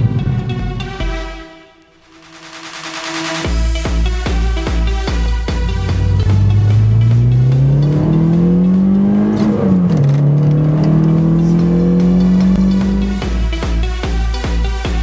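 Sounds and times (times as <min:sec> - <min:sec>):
car engine accelerating: 0:00.0 - 0:01.4, 0:04.4 - 0:15.0.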